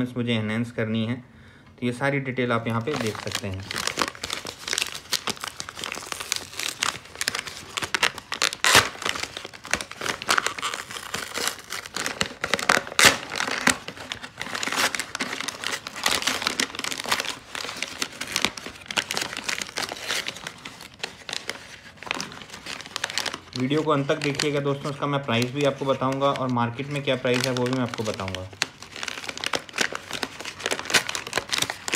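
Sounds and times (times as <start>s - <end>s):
paper envelope crumpling and tearing: 2.6s - 31.9s.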